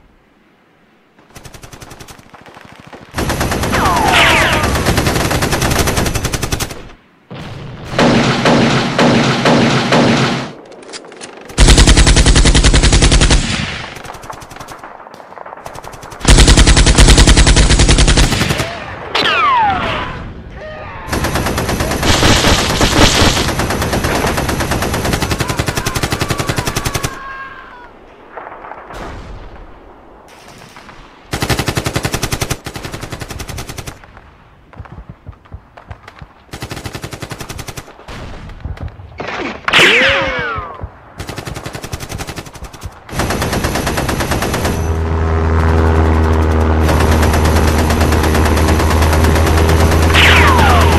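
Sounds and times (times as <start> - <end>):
machine-gun fire: 3.1 - 6.9, 7.8 - 10.6, 11.5 - 18.7, 21.1 - 27.2, 41.2 - 50.9.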